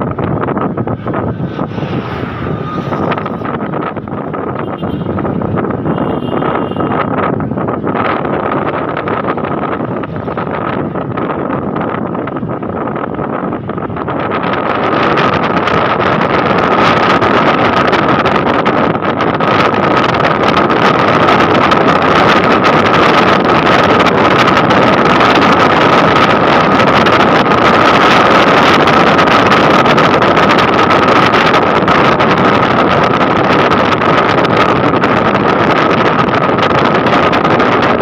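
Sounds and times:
motorcycle engine whining: 0.0 - 18.0
wind rushing over microphone: 0.0 - 38.0.

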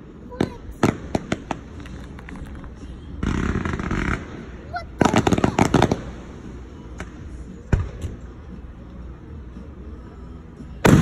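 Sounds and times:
fireworks crackling pops: 0.3 - 8.3.

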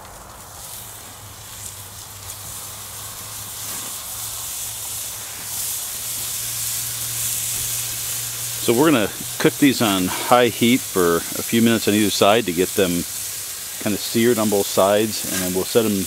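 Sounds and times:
steady low hum: 0.0 - 12.1
meat sizzling on a grill: 0.0 - 16.0.

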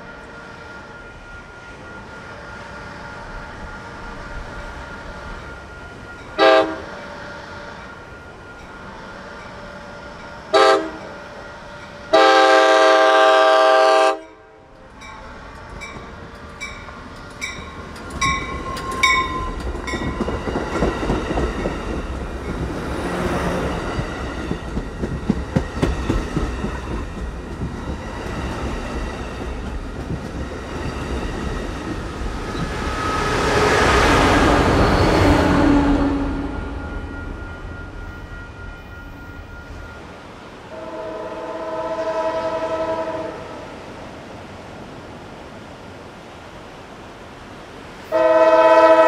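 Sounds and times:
rumble of passing train cars: 0.0 - 49.0
train air horn blasts: 6.4 - 8.1, 9.1 - 14.8, 33.0 - 37.3, 40.7 - 43.8, 48.1 - 49.0
train wheels clicking over rail joints: 14.9 - 35.3.

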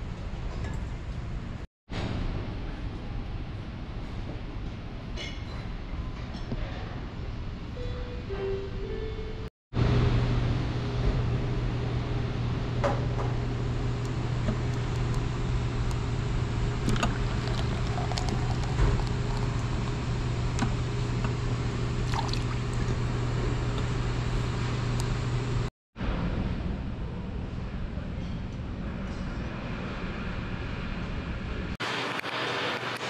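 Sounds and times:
airplane cabin hum: 9.8 - 25.7
air noise: 9.8 - 33.0.

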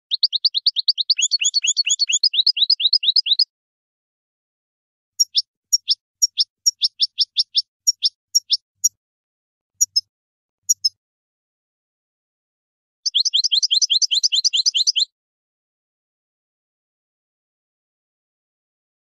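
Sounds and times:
goldfinch singing: 0.0 - 3.5, 5.2 - 9.0, 13.1 - 15.1.

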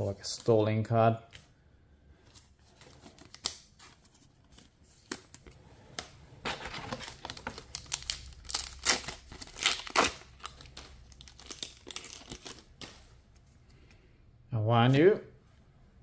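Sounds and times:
foil wrapper crinkling: 6.6 - 13.0
foil wrapper ripping: 7.0 - 12.9.

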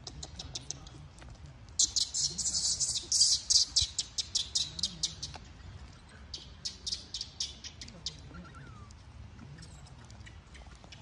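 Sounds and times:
bird chirping rapidly: 1.8 - 5.3, 6.3 - 8.7.

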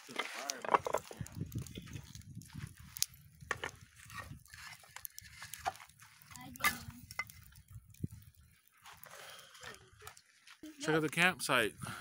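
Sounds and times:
firewood clicking and knocking: 0.0 - 11.2.

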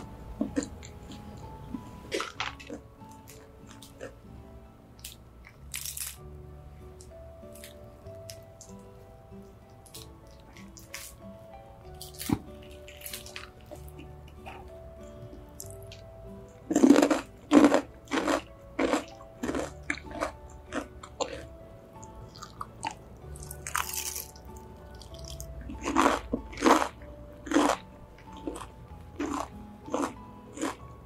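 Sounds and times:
soft background music: 0.0 - 31.0
fried chicken crunching: 5.0 - 6.2, 12.0 - 14.7, 16.6 - 21.5, 22.3 - 30.8.

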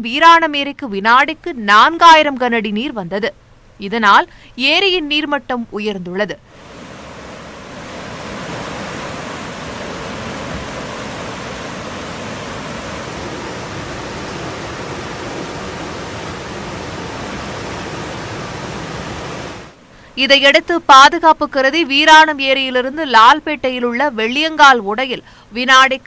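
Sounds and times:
steady rushing hiss: 6.5 - 20.0.

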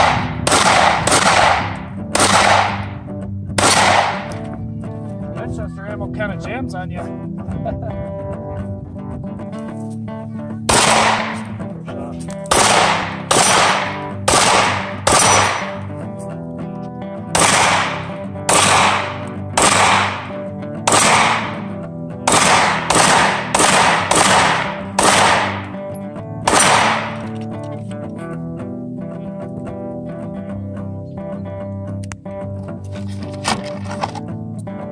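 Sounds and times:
pistol shots: 0.0 - 4.4, 10.7 - 11.6, 12.5 - 15.9, 17.3 - 25.8, 26.4 - 27.4
background music: 0.0 - 34.9.

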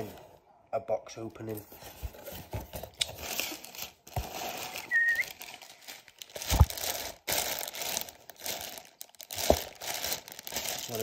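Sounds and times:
plastic packaging crinkling: 2.7 - 11.0
high squeak: 4.8 - 5.3.

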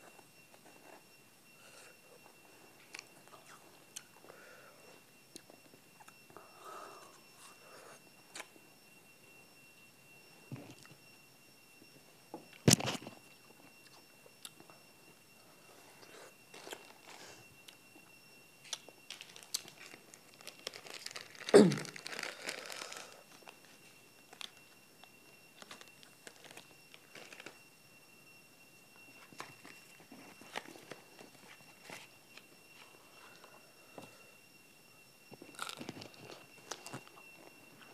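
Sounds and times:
food crunch: 18.6 - 23.6, 25.6 - 27.6, 35.4 - 37.2
plastic wrapper crinkling: 18.7 - 23.6, 25.6 - 27.6, 35.5 - 37.1.

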